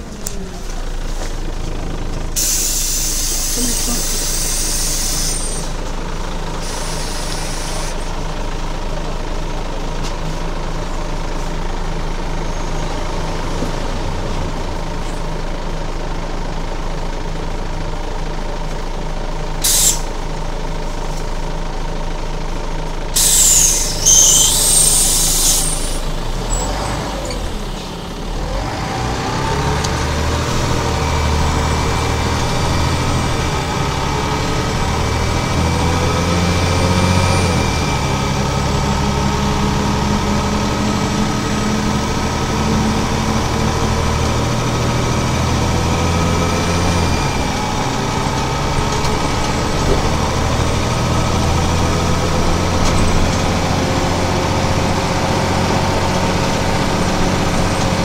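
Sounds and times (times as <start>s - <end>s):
bus diesel engine accelerating: 0.0s - 58.0s
thin high squeal: 23.2s - 26.7s.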